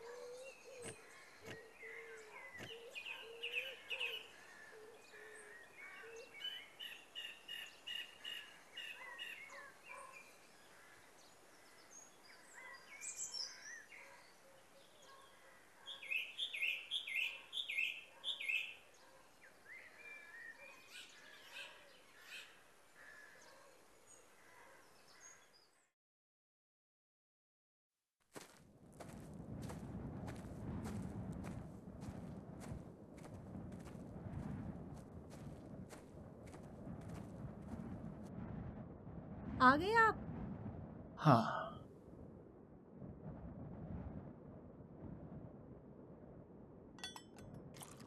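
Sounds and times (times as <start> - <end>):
birds chirping: 0.0 - 25.8.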